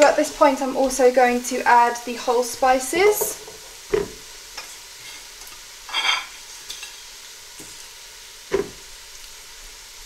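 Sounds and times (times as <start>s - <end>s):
masala frying sizzle: 0.0s - 10.0s
pot clattering: 5.9s - 7.0s.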